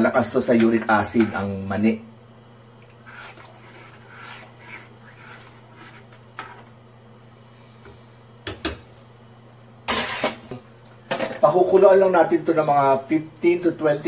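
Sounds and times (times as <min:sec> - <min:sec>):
steady low hum: 0:00.0 - 0:14.0
ladle stirring thick sauce: 0:02.8 - 0:06.9.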